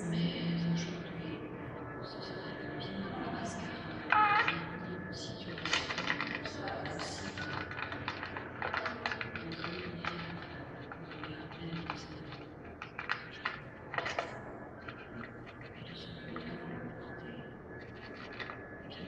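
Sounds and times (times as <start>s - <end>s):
parrot clicking and tapping: 7.4s - 10.4s.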